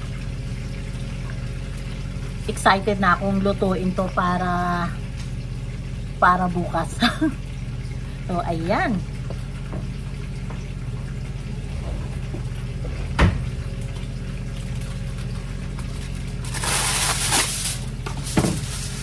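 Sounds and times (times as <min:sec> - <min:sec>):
low kitchen hum: 0:00.0 - 0:19.0
aluminium foil crinkling: 0:14.8 - 0:19.0.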